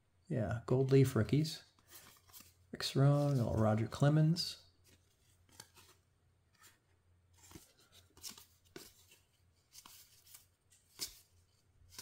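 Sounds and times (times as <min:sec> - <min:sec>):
trading cards swiping: 0:07.4 - 0:11.3.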